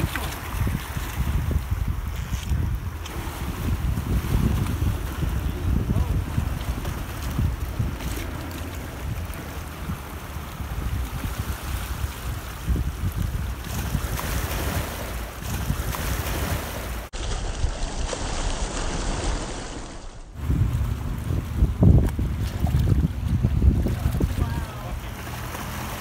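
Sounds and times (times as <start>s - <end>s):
wind buffeting microphone: 0.0s - 19.4s, 20.3s - 26.0s
choppy water around rocks: 0.0s - 26.0s.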